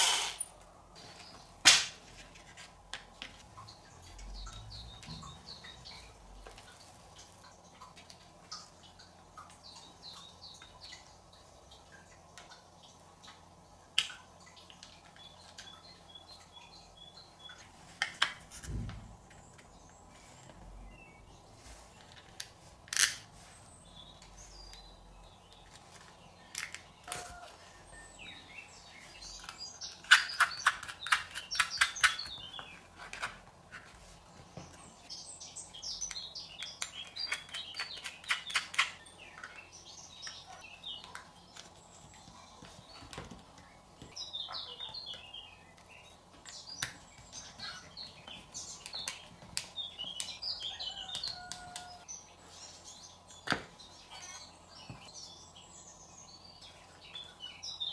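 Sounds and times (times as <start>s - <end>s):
small screws clicking and scraping: 0.0s - 0.5s.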